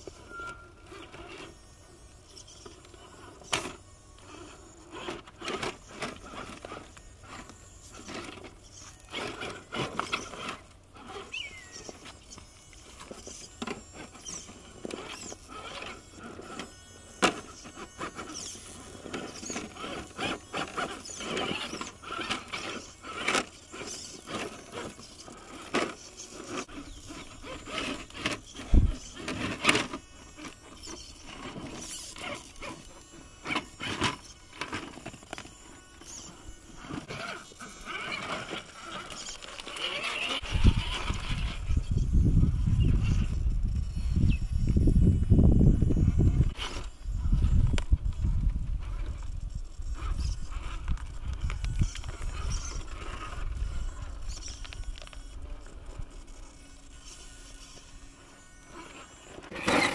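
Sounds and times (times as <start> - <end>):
electric motor whirring: 0.0 - 59.9
tyres scraping on stone: 2.8 - 41.6, 49.8 - 59.9.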